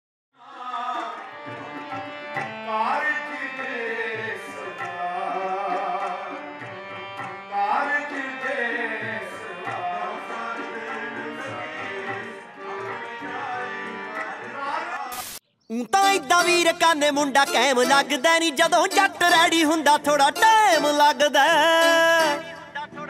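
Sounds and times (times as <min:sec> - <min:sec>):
person singing devotional hymn: 0:00.4 - 0:14.9, 0:15.7 - 0:23.0
harmonium: 0:00.4 - 0:15.1, 0:15.7 - 0:23.0
tabla drumming: 0:00.9 - 0:03.1, 0:04.1 - 0:07.5.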